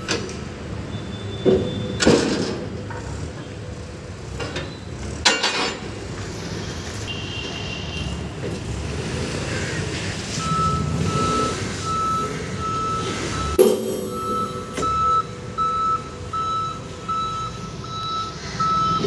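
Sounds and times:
engine running: 0:08.5 - 0:19.0
reversing alarm beeping: 0:10.3 - 0:19.0
metal clang: 0:13.6 - 0:15.0.

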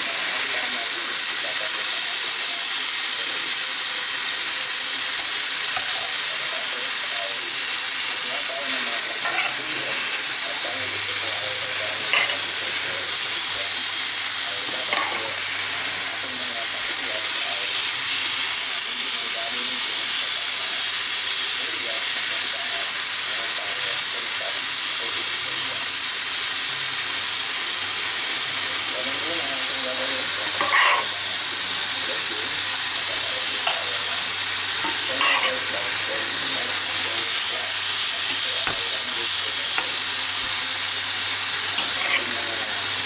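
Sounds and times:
food sizzling in a frying pan: 0:00.0 - 0:43.0
utensil tapping a pan: 0:38.6 - 0:39.0.

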